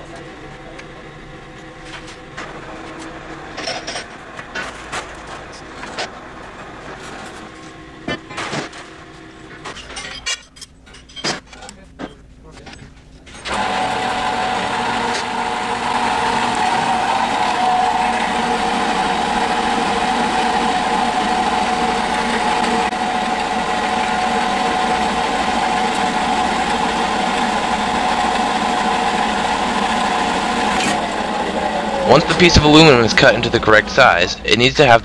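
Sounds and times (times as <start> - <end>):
band saw cutting metal: 13.4 - 35.0
saw blade whine: 13.4 - 35.0.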